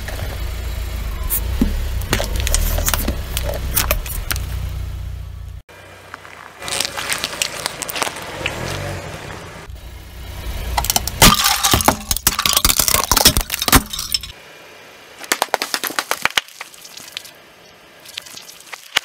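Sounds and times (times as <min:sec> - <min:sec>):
plastic bowls cracking under car tyre: 0:02.0 - 0:04.5, 0:10.7 - 0:14.3, 0:15.3 - 0:17.2
scattered plastic crackles: 0:06.6 - 0:08.6.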